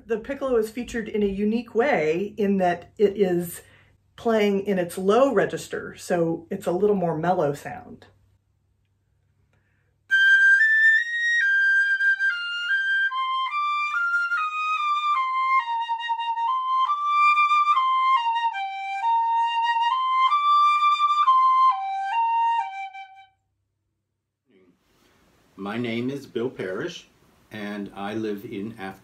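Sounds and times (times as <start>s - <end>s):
piccolo slow melody: 10.1s - 23.4s.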